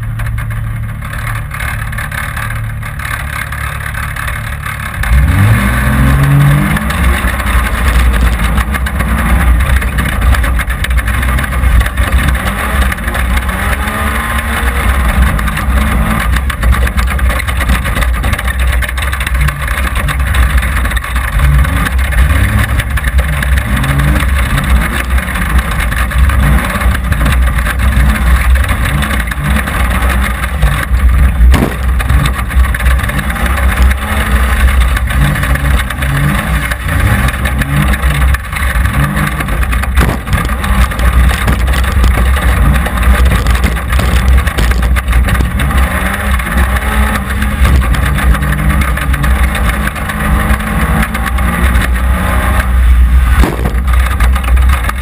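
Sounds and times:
race car engine revving: 0.0s - 55.0s
sharp knock: 31.5s - 32.2s, 40.0s - 40.6s, 53.4s - 54.1s.

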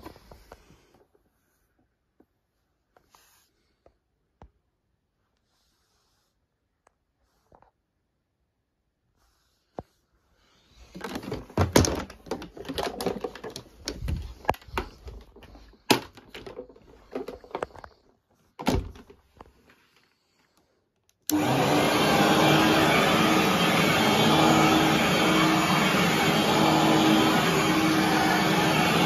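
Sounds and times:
knocks and rattles of vacuum: 10.8s - 17.9s, 18.6s - 19.3s, 21.3s - 29.0s
vacuum cleaner motor humming: 21.3s - 29.0s.

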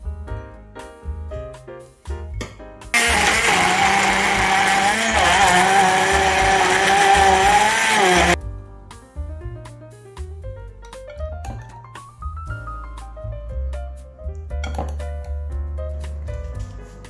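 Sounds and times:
stick blender running: 3.0s - 8.4s.

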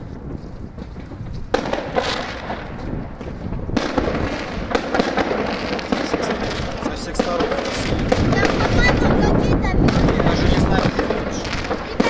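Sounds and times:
fireworks crackling and popping: 0.0s - 12.0s.

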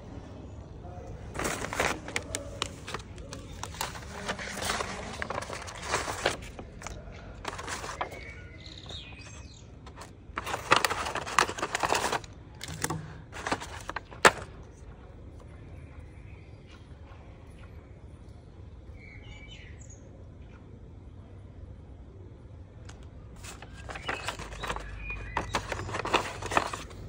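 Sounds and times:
envelope tearing and rustling: 1.3s - 14.5s, 23.4s - 27.0s
faint bird chirps: 18.9s - 20.7s.

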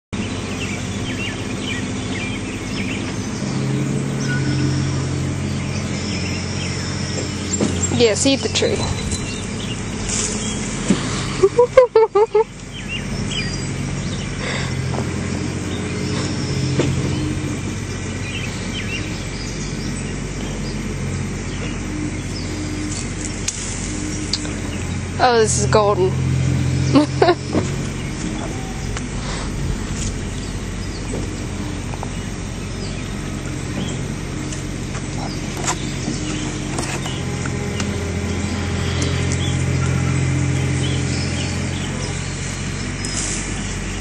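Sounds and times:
small birds chirping: 0.2s - 44.0s
steady low hum: 0.2s - 44.0s.

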